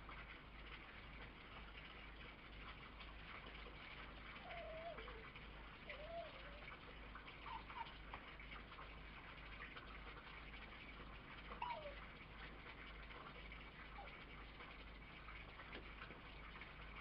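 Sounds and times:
fox squeaks: 4.4 - 5.2, 5.9 - 6.6, 11.6 - 12.0
fox whining: 4.4 - 6.8, 7.4 - 7.9, 11.5 - 12.0.

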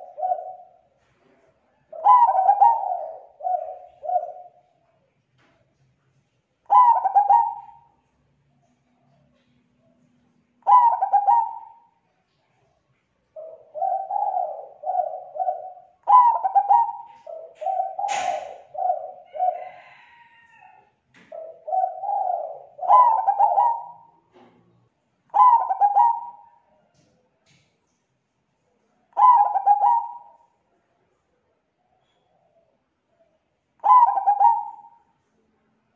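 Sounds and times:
dove cooing: 0.0 - 4.7, 6.6 - 8.1, 8.8 - 12.0, 13.3 - 24.6, 25.3 - 26.9, 29.1 - 30.6, 31.8 - 35.1.

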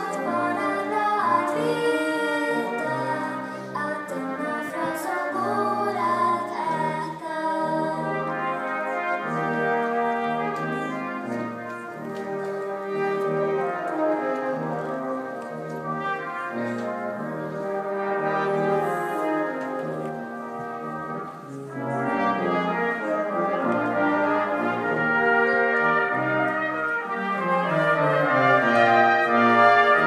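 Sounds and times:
brass quintet playing: 0.0 - 30.0.

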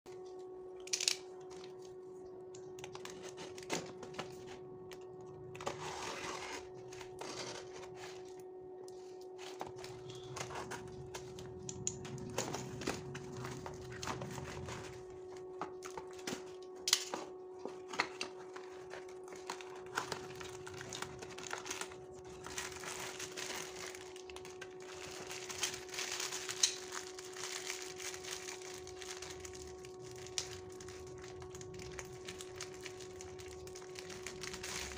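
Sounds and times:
faint steady hum: 0.1 - 34.9
plastic wrapping crinkling: 2.6 - 34.9
cardboard scraping and tearing: 5.6 - 8.3.

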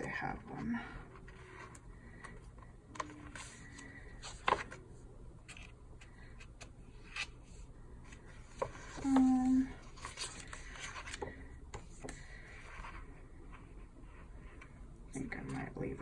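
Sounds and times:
paper rustling: 1.2 - 4.8, 8.1 - 13.1.

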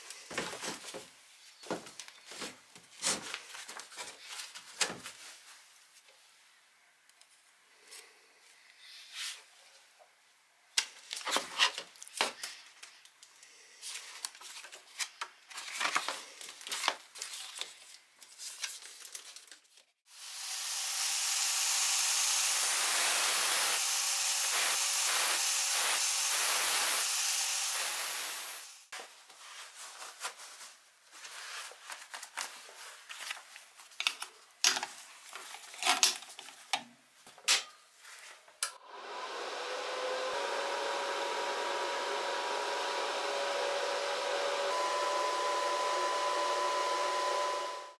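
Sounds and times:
welding arc hissing and crackling: 20.2 - 28.9.

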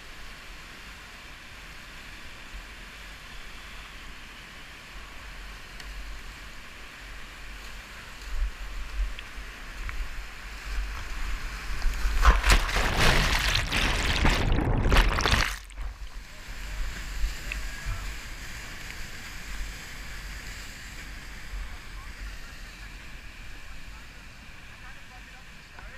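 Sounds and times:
loud water splashing and churning: 10.8 - 20.4
whitewater rushing: 11.2 - 18.8.

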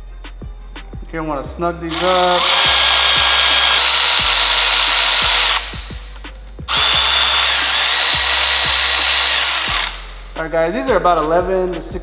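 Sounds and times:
electric ratchet whining: 1.9 - 10.2.

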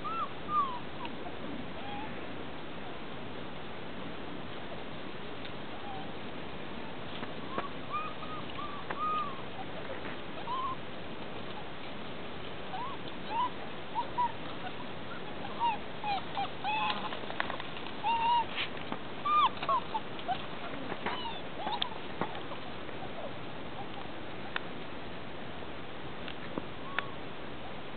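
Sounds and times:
puppies yipping and squealing: 0.0 - 2.2, 5.7 - 6.2, 7.4 - 10.8, 11.4 - 24.5, 26.8 - 27.2.

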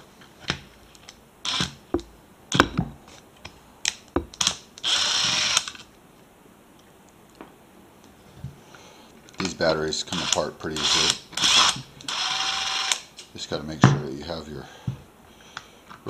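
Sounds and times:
cordless drill running: 4.8 - 5.7, 10.2 - 13.0.

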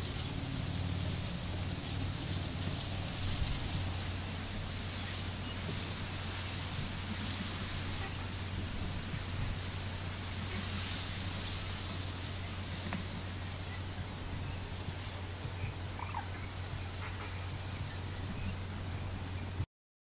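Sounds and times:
hiss: 0.0 - 19.3
low hum: 0.0 - 19.7
thin high whine: 0.0 - 19.7.

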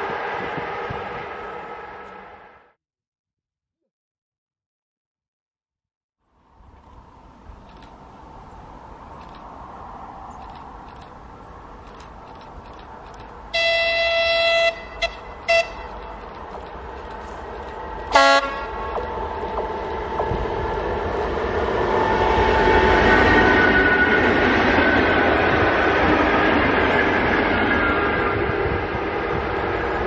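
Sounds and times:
train running noise: 0.0 - 2.7, 6.6 - 30.0
train horn blasts: 13.5 - 16.3, 17.2 - 20.8.

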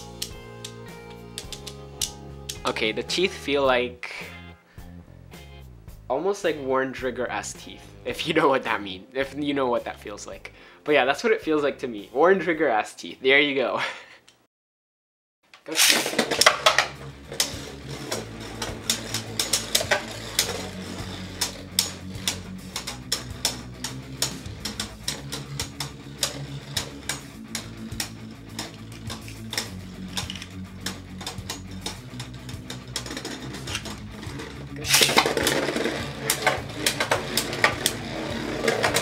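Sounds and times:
tops clacking together: 0.0 - 2.7, 15.6 - 39.0
spinning tops clattering landing: 15.7 - 39.0
spinning tops whirring: 15.7 - 39.0.

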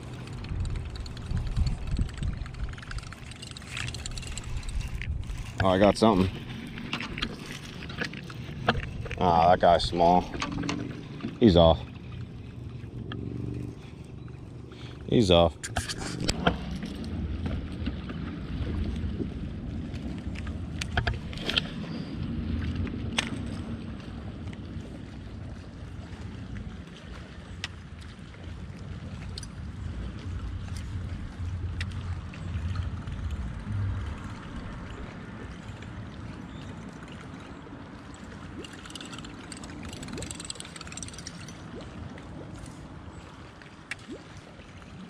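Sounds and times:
small waves lapping against hull: 0.0 - 45.0
wind rumbling on microphone: 0.0 - 45.0
fishing reel clicks: 38.6 - 41.6.

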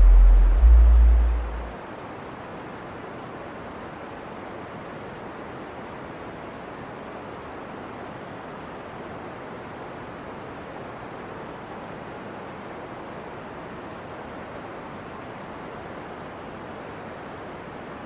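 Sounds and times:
deep low boom: 0.0 - 1.7.

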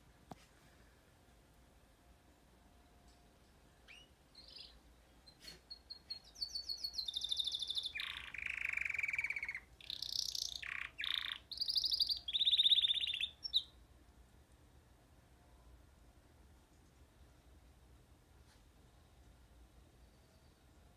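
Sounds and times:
canary singing trills: 3.8 - 13.8.

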